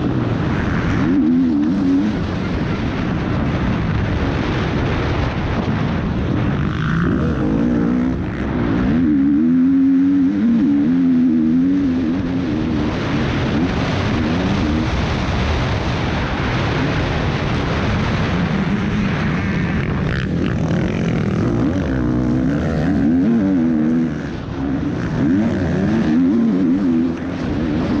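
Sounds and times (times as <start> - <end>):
motocross bike engine revving: 0.0 - 28.0
wind rush on microphone: 0.0 - 28.0.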